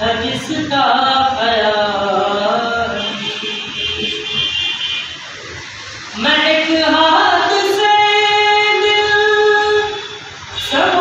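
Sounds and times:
man singing unaccompanied: 10.6s - 11.0s.

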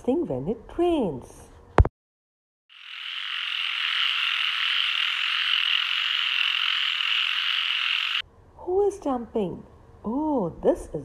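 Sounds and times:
frogs croaking: 2.7s - 8.2s.

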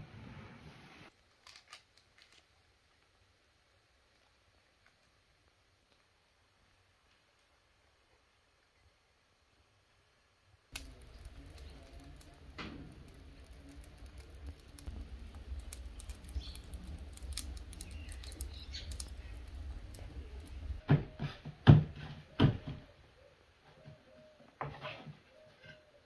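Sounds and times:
fire crackling and popping: 1.1s - 8.8s, 10.7s - 20.9s.

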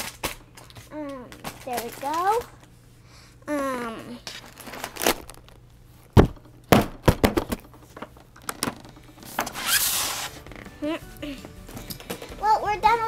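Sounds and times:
plastic packaging crinkling: 0.0s - 2.7s, 4.2s - 5.7s
box knocks and thunks: 6.1s - 9.6s.

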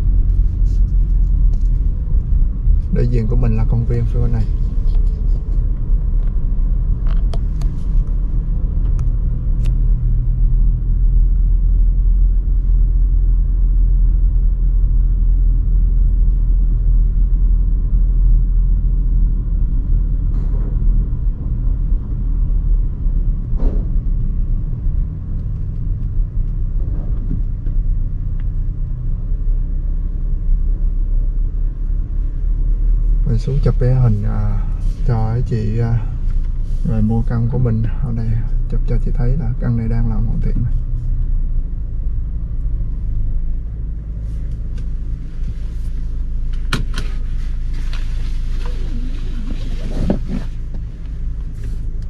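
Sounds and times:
car driving slowly from inside: 0.0s - 52.0s.

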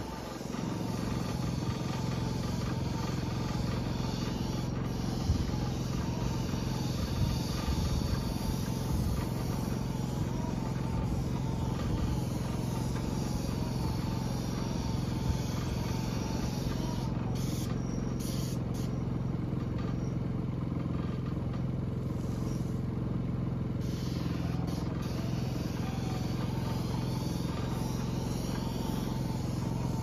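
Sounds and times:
small gasoline engine running: 0.0s - 30.0s.

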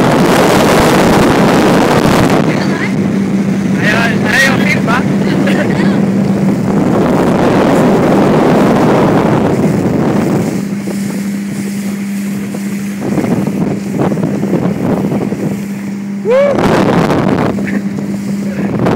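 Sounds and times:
motorboat engine hum: 0.0s - 18.9s
water rushing past hull: 0.0s - 18.9s
wind buffeting microphone: 0.0s - 18.9s.

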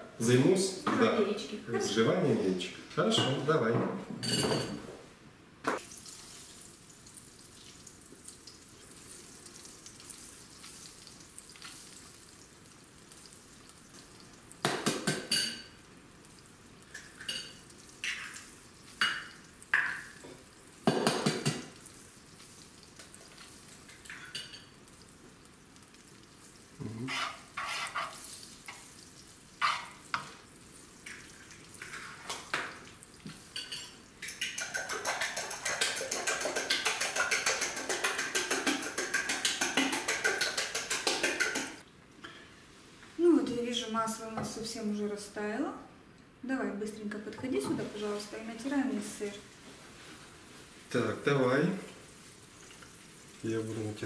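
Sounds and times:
faint steady hiss: 0.0s - 54.0s
eggs cracking against glass bowl: 31.0s - 41.8s
spoon tapping on glass: 33.6s - 41.8s.

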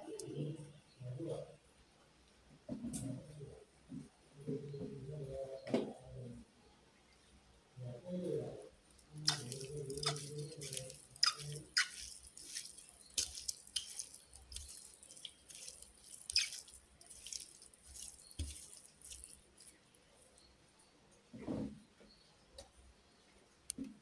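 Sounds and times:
hands tossing mushrooms in bowl: 9.2s - 19.8s.

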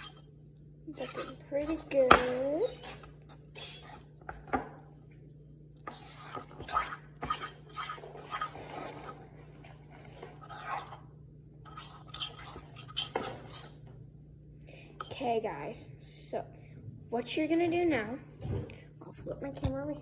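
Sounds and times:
utensil scraping dough in bowl: 0.0s - 0.3s, 0.9s - 4.5s, 5.8s - 13.8s.

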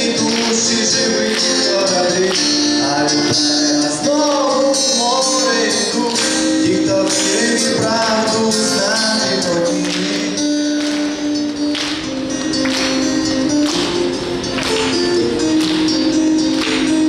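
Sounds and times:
man singing: 0.0s - 11.0s
acoustic guitar: 0.0s - 17.0s
keyboard accompaniment: 0.0s - 17.0s.

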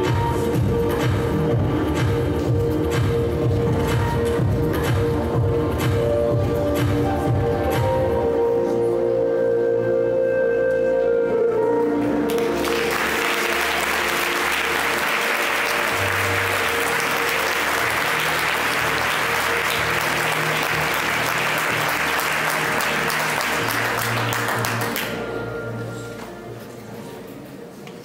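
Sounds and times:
music: 0.0s - 28.0s
audience applauding: 12.3s - 25.2s.

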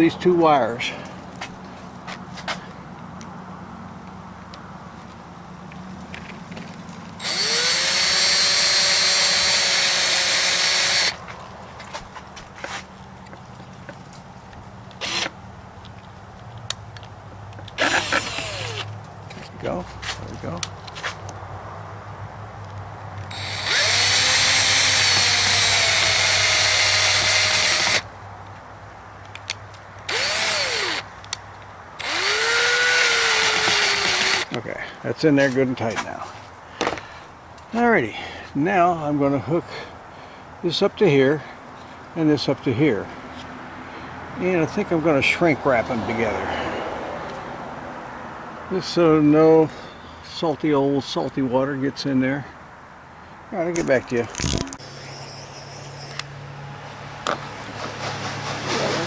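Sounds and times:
cordless drill whining: 7.2s - 11.2s, 15.0s - 15.4s, 17.8s - 18.9s, 23.3s - 28.0s, 30.1s - 31.0s, 32.0s - 34.6s.

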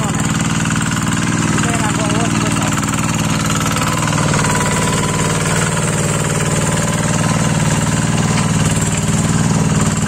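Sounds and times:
diesel hand tractor running: 0.0s - 10.0s.

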